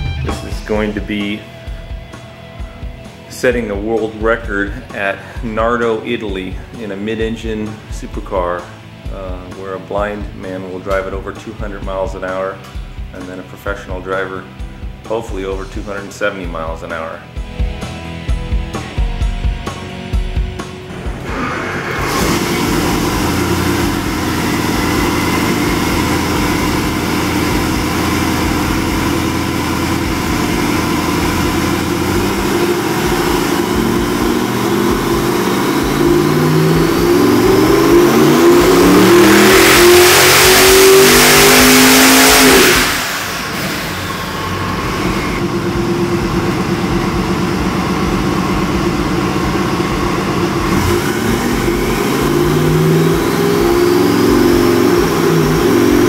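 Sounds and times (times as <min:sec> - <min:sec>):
engine revving on dyno: 0:20.9 - 0:56.0.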